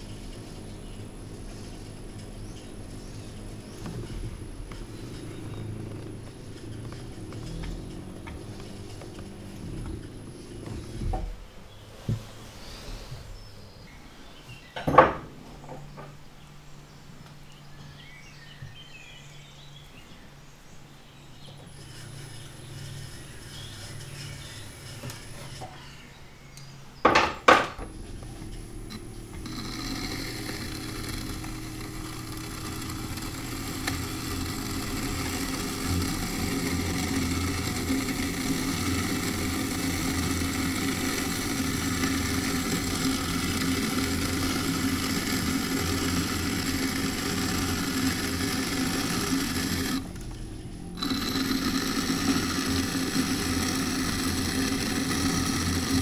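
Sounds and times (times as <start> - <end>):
potter's wheel running: 0.0 - 11.3, 21.6 - 25.9, 27.1 - 56.0.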